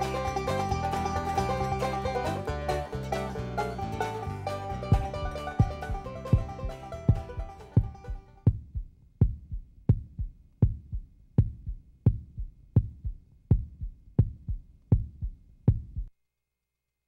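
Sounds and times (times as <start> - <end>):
thumping drum beat: 4.8 - 16.1.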